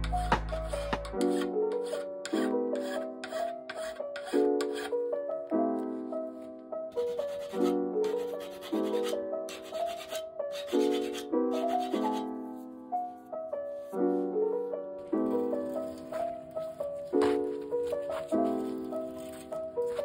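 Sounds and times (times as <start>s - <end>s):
file rasping on metal: 0.0s - 5.0s, 7.1s - 12.2s
piano music: 0.0s - 20.0s.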